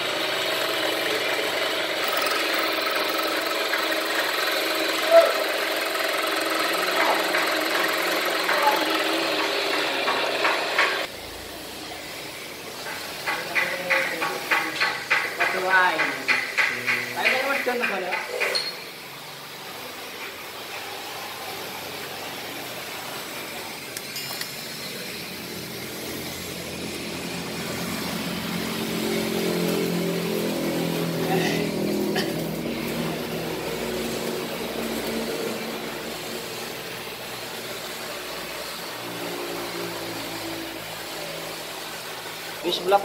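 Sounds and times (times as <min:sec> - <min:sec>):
vehicle engine running: 0:00.0 - 0:11.1, 0:25.3 - 0:37.7.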